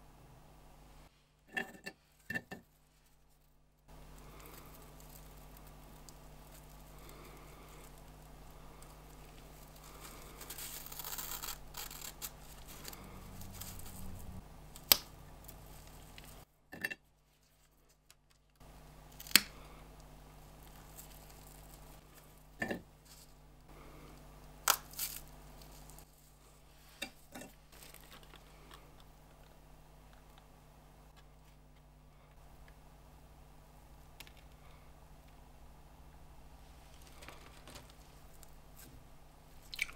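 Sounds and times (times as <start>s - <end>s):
wafer wrapper rustle and scrape: 9.0s - 14.4s
wafer snapping cracks: 14.8s - 15.2s, 19.2s - 19.6s, 24.6s - 25.2s.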